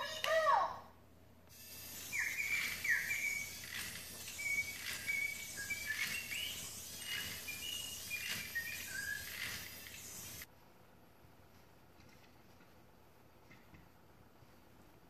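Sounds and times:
toy canary chirping: 1.5s - 10.5s.

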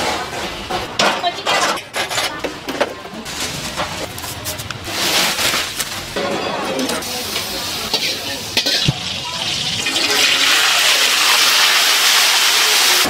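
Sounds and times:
wok clinking and scraping: 0.0s - 10.7s
food sizzling in hot oil: 7.0s - 13.0s.

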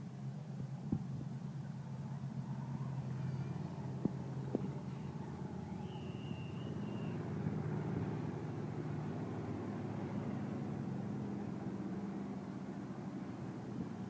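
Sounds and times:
race car engines droning: 0.2s - 14.0s
high-pitched squeal: 4.9s - 7.2s.

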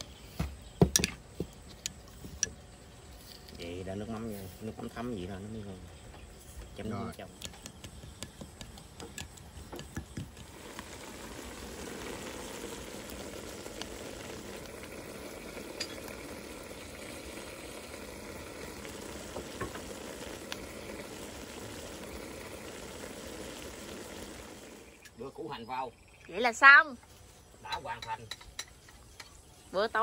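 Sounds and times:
meat sizzling in a pan: 9.9s - 25.1s.

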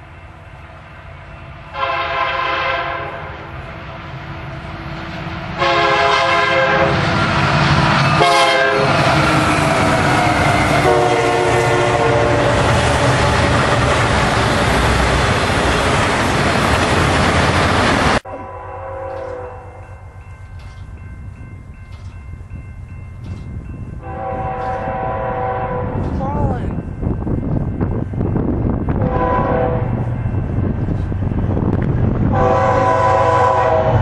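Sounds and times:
passing train rumble: 0.0s - 34.0s
locomotive horn blasts: 1.7s - 3.5s, 5.6s - 7.0s, 8.2s - 9.1s, 10.7s - 12.5s, 18.2s - 19.9s, 24.0s - 26.2s, 29.0s - 30.0s, 32.3s - 34.0s
wheels clacking on rails: 19.0s - 34.0s.

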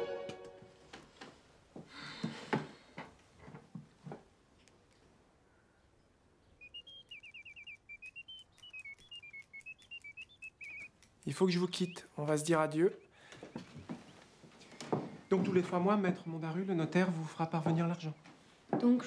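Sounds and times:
mechanical bird whistling birdsong: 6.5s - 13.7s.

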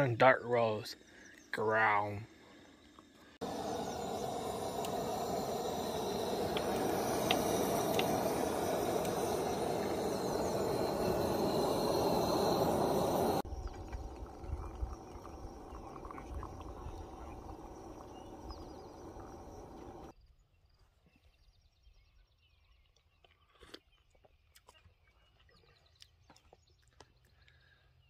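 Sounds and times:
coffee pouring into a mug: 3.4s - 20.1s
faint bird chirps: 3.5s - 28.0s.

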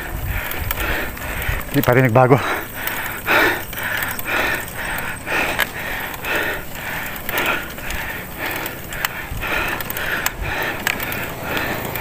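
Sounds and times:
person breathing hard: 0.0s - 12.0s
faint sharp clicks: 7.1s - 12.0s.

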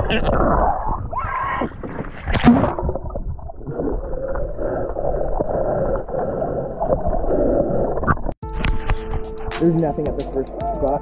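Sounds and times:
muffled underwater sloshing and bubbling: 0.0s - 8.4s.

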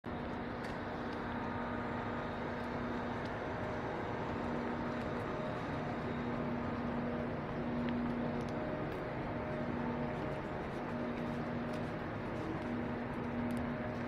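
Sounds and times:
steady mechanical hum: 0.1s - 14.0s.

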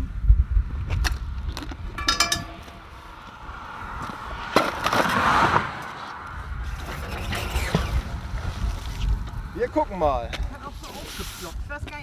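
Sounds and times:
metal clinking: 2.0s - 3.0s.

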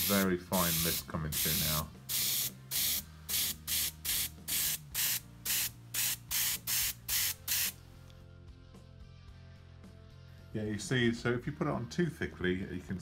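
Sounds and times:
airbrush spraying bursts: 0.0s - 7.8s.

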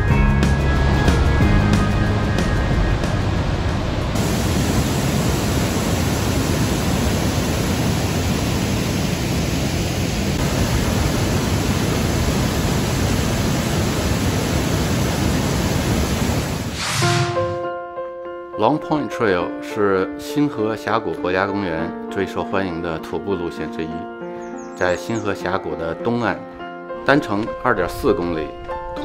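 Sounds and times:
waterfall rushing: 3.0s - 17.6s.

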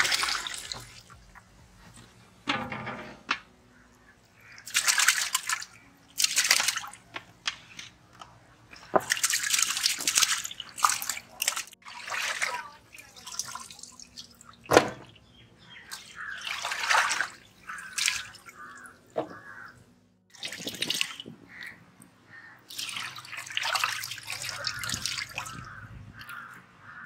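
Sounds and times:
water splashing in a pot: 0.0s - 1.1s, 4.5s - 7.2s, 8.8s - 15.0s, 15.9s - 18.8s, 20.3s - 21.8s, 22.7s - 26.4s.

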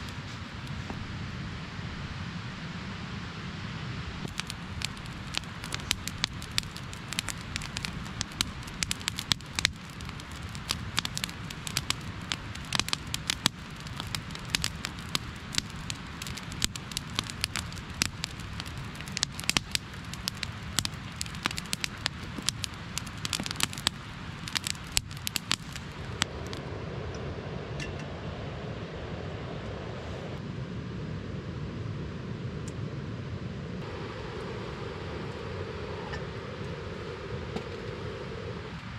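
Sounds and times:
campfire crackling and popping: 0.0s - 2.6s, 4.0s - 26.7s.

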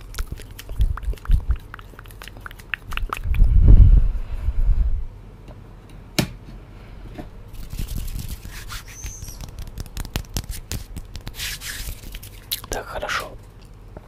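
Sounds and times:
hands clicking and rubbing by mic: 0.0s - 3.5s, 7.6s - 12.8s.

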